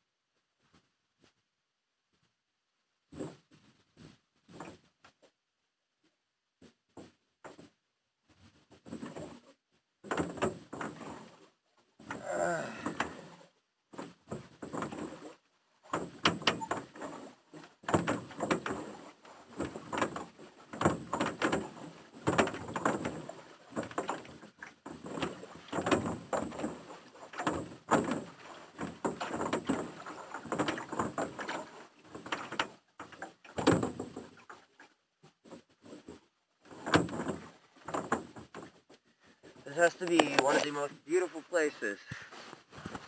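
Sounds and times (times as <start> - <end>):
oars creaking in oarlocks: 3.1 - 5.3, 8.4 - 43.0
oars splashing in water: 8.8 - 43.0.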